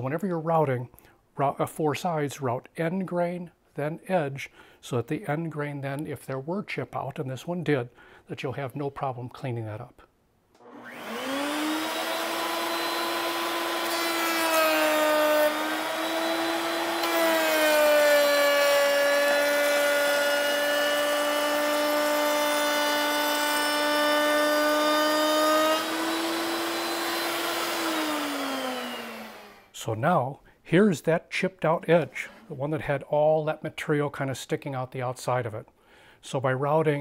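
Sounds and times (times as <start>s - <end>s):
router high whine: 10.6s - 29.7s.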